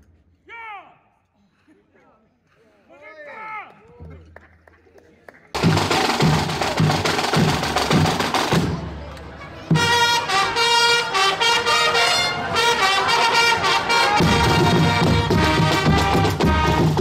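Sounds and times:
marching drums: 5.6s - 9.0s, 9.7s - 10.8s, 12.6s - 17.0s
fanfare trumpets: 8.5s - 17.0s.

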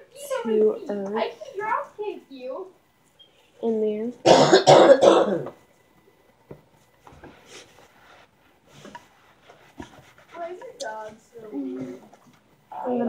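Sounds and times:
person coughing: 4.2s - 5.5s
faint rustling: 6.6s - 12.7s.

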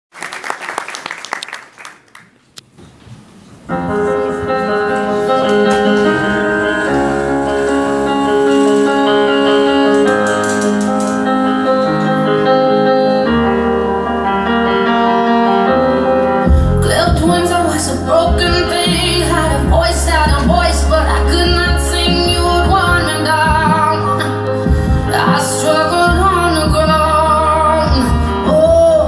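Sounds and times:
applause: 0.1s - 2.5s
slow piano chords: 3.7s - 29.0s.

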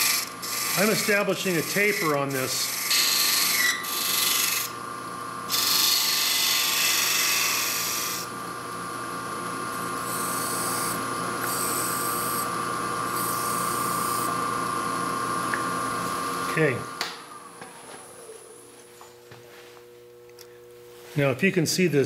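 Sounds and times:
tool scraping spinning wood: 0.0s - 4.8s, 5.5s - 8.3s
wood lathe humming and whining: 0.0s - 18.8s.

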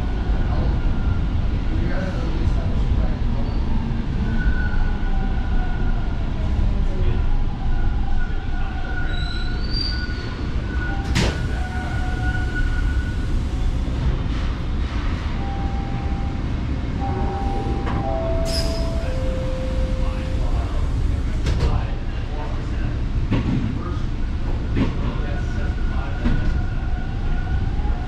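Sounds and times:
subway train rumble: 0.0s - 28.0s
wheel squeal: 9.0s - 11.1s.

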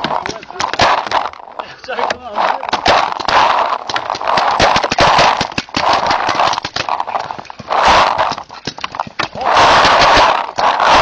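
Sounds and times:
paintball markers firing: 0.0s - 1.4s, 2.0s - 11.0s
paintballs striking wood: 0.0s - 11.0s
bursts of rushing noise: 9.3s - 11.0s.

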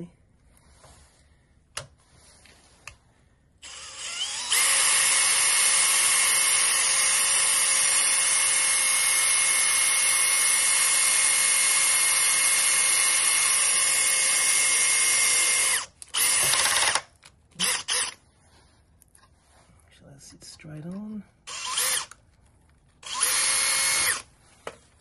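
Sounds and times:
cordless drill whining: 3.6s - 18.2s, 21.5s - 22.2s, 23.0s - 24.3s.

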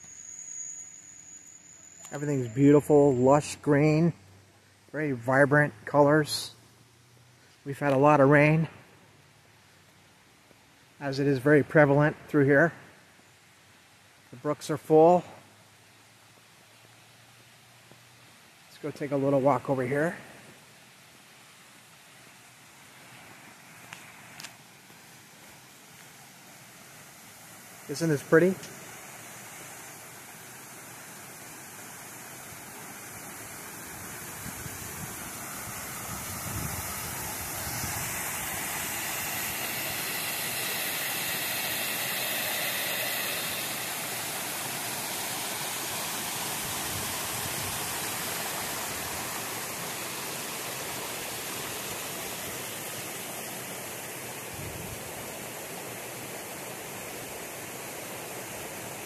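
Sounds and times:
brook rushing water: 15.4s - 59.0s.

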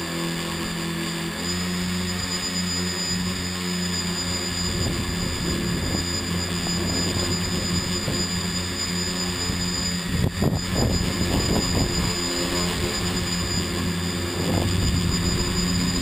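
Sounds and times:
drone motors humming and whining: 0.0s - 16.0s
wind buffeting microphone: 4.6s - 8.5s, 9.3s - 16.0s.

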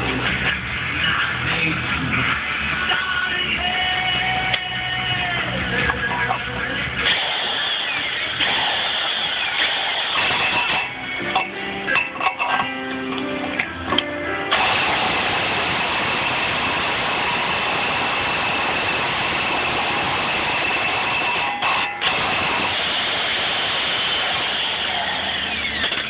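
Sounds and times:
pneumatic air hammer hammering: 7.0s - 12.7s, 13.9s - 16.0s, 20.8s - 26.0s.

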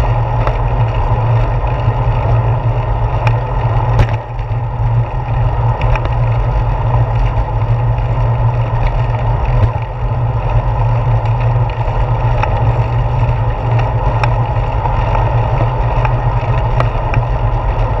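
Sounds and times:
bicycle road rumble: 0.0s - 18.0s
clicks and knocks from bumps: 3.2s - 4.6s, 8.7s - 10.1s.

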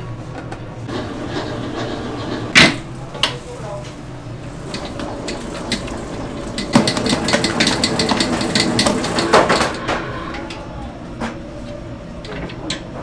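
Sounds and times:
steady low hum: 0.0s - 13.0s
clatter of clicks and knocks: 4.7s - 10.0s.

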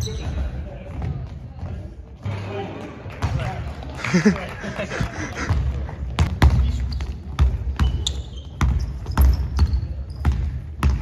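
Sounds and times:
sneaker squeaks: 0.0s - 0.6s, 6.4s - 11.0s
basketball bouncing on wooden floor: 5.5s - 11.0s.

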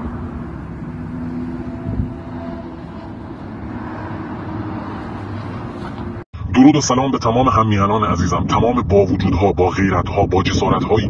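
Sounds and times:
cars passing on street: 0.0s - 6.3s.

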